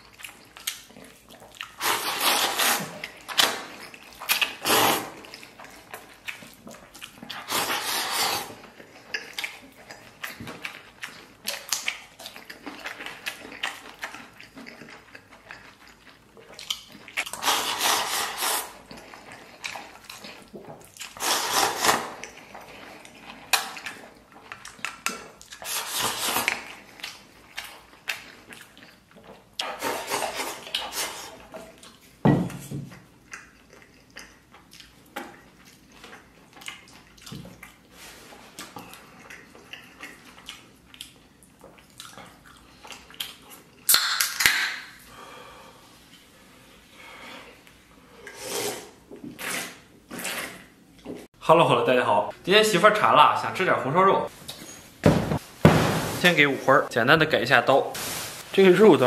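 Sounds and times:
chewing: 0.0s - 44.0s
wet eating noise: 0.0s - 51.4s.

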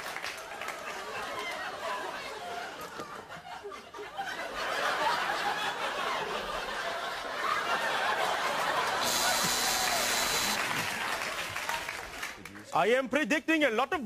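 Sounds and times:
studio audience laughing: 0.6s - 11.4s.

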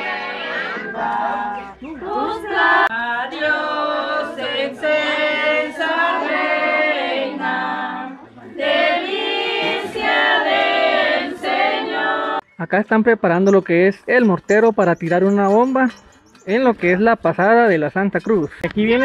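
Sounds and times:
group of voices singing: 0.0s - 12.4s.

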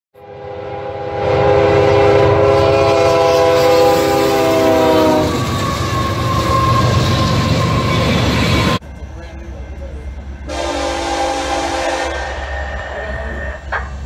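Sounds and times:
locomotive horn blast: 0.2s - 8.2s, 10.5s - 13.6s
train rumble: 0.3s - 14.0s.

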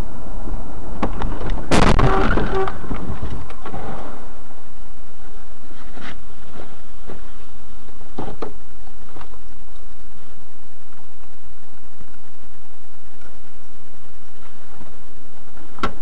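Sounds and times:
road rumble: 0.0s - 16.0s
car crash: 1.0s - 4.4s.

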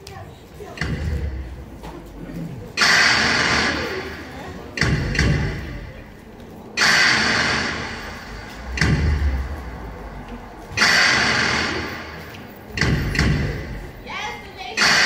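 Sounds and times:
dance track percussion over speakers: 0.7s - 6.1s, 6.8s - 15.0s
cymbal crashes ringing out: 6.8s - 10.1s, 10.7s - 13.9s
deep bass drum thump: 8.3s - 10.3s, 12.8s - 14.0s.

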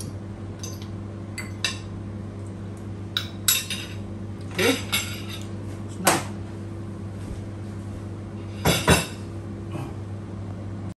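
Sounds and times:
steady low hum: 0.0s - 11.0s
dishes and cutlery clinking: 4.7s - 5.5s, 8.6s - 9.2s.

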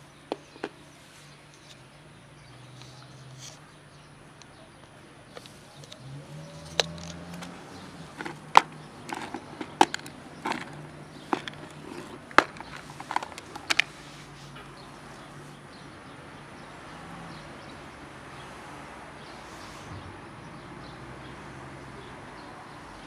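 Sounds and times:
plastic container lid clicking: 8.1s - 13.9s.

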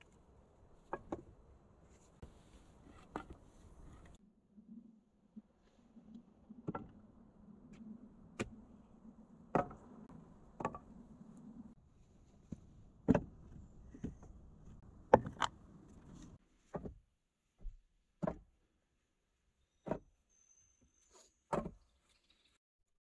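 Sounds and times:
logs knocking on wood: 0.8s - 1.3s, 9.5s - 9.9s, 10.6s - 10.9s, 12.4s - 15.5s, 17.6s - 18.4s.

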